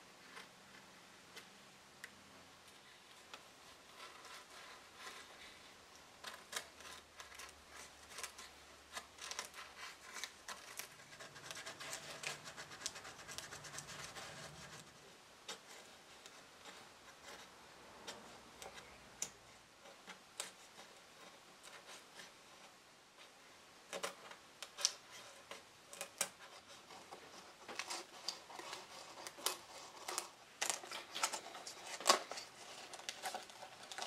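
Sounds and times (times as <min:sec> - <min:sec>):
paper crackling: 0:06.2 - 0:17.5.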